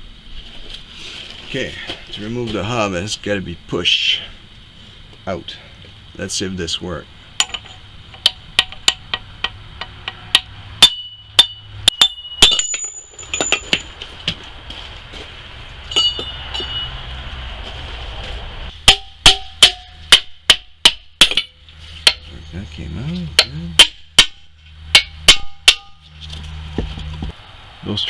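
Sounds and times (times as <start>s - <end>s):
hammer striking metal: 7.4s - 13.9s, 15.9s - 16.9s, 18.7s - 22.3s, 23.4s - 26.1s
light metal taps and clinks: 7.4s - 14.1s, 15.9s - 17.0s.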